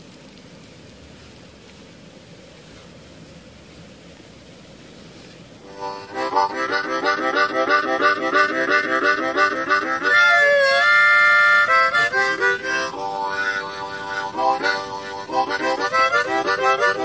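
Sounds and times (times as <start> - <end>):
harmonica playing: 5.6 - 17.0.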